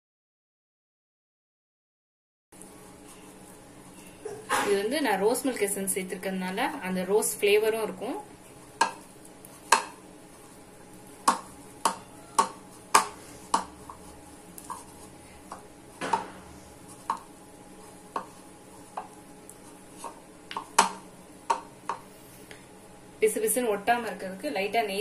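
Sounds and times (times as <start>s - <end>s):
dough kneaded in ceramic bowl: 2.6s - 22.1s.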